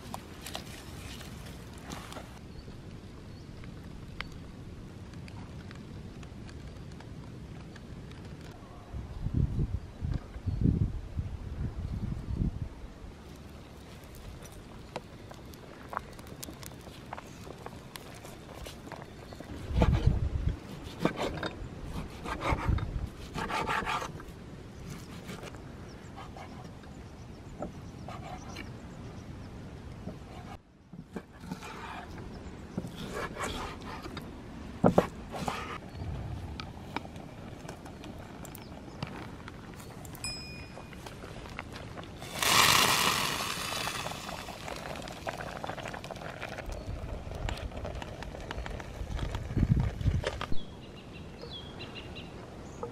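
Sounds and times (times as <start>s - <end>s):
wet rice sliding onto mesh: 42.2s - 45.0s
water pouring into a steel bowl: 42.3s - 45.2s.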